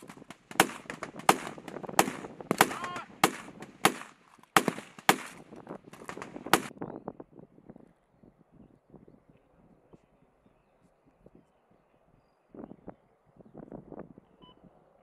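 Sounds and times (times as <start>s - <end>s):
rifle shots with echo: 0.0s - 6.7s.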